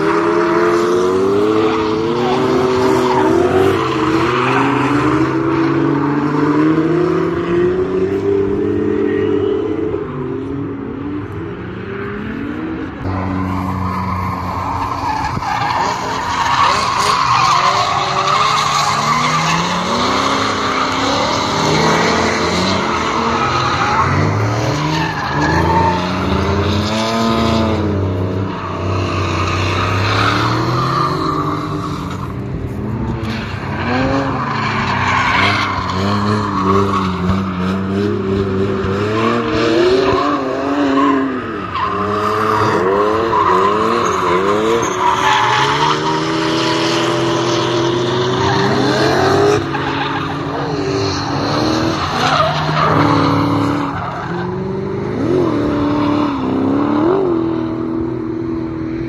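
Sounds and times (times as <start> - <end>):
car engines revving: 0.0 - 59.0.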